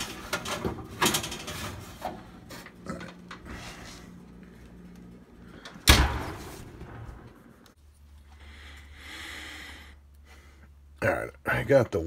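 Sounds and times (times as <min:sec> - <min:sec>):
baking tray and oven rack clattering: 0:00.0 - 0:02.3
oven door thump: 0:05.8 - 0:07.1.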